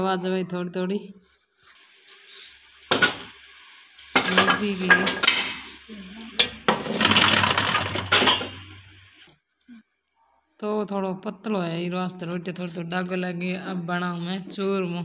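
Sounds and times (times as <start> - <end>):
metal kitchenware clattering: 4.1 - 8.7.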